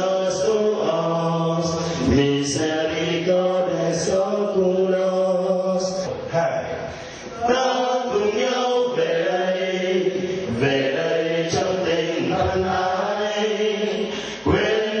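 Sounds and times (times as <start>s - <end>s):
group of people singing in unison: 0.0s - 15.0s.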